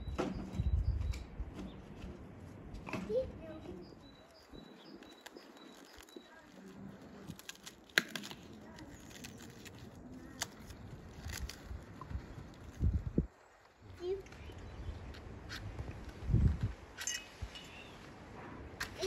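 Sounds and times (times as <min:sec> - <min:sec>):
faint high chirps: 0:03.4 - 0:06.9
garlic skin crackling: 0:04.0 - 0:13.6.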